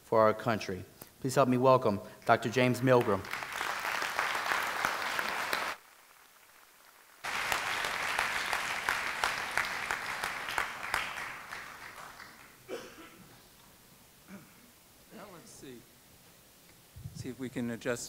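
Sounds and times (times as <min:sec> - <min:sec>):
audience applauding: 0:02.4 - 0:12.7.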